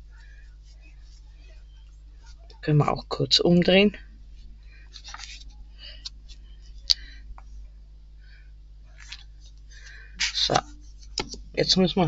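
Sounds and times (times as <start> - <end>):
paper rustling: 4.4 - 6.5, 9.0 - 11.4.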